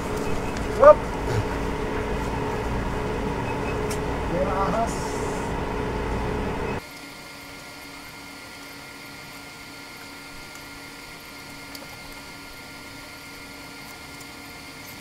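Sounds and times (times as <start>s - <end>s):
faint steady tones: 0.0s - 6.8s.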